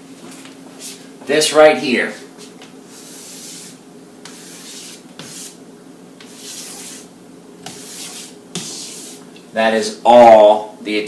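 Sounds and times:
chalk scratching on blackboard: 2.9s - 5.6s, 6.2s - 9.3s.

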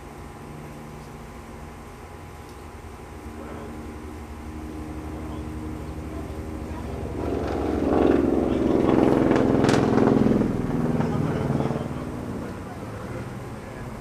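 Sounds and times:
vehicle engine passing: 4.4s - 14.0s.

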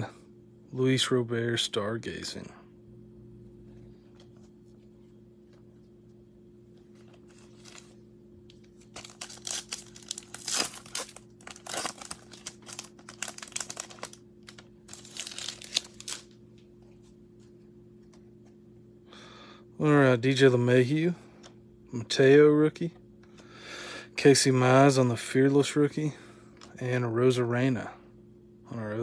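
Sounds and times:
foil wrapper tearing and crinkling: 8.7s - 16.4s.

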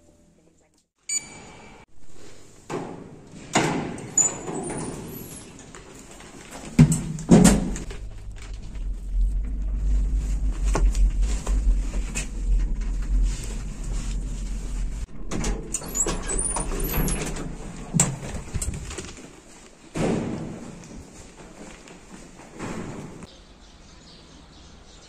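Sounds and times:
sliding doors clunking and squeaking: 2.7s - 7.9s, 10.2s - 19.1s
elevator hum: 7.0s - 18.4s.

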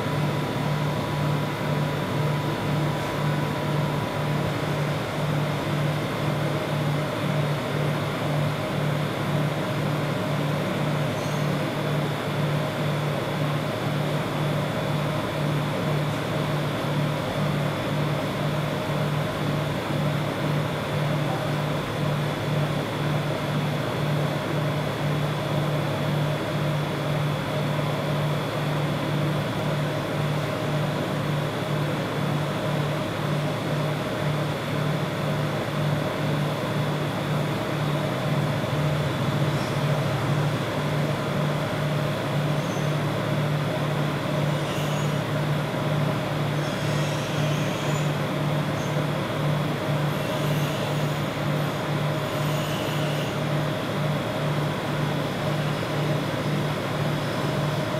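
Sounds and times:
pulsing mechanical hum: 0.0s - 57.9s
thin high whine: 50.1s - 53.4s.

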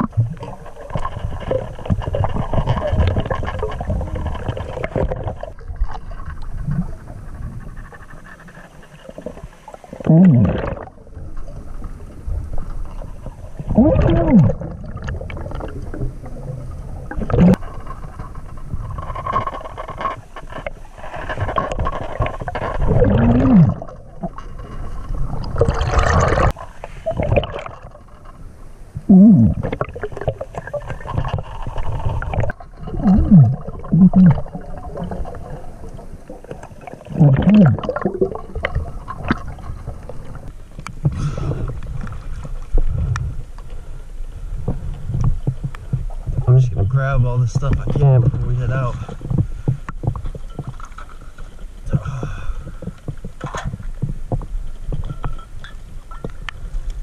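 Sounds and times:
diver breathing with bubbles: 0.0s - 17.6s, 20.9s - 28.1s, 29.1s - 46.4s.

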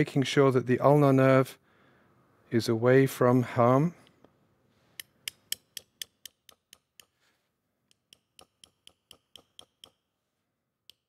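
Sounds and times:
steel mallet tapping metal: 5.0s - 7.1s, 7.9s - 10.0s.

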